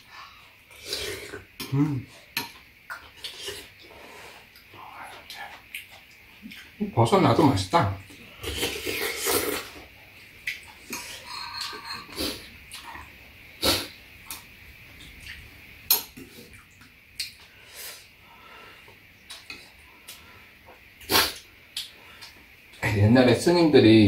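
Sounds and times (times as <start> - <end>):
slurping stew: 8.3 - 9.9.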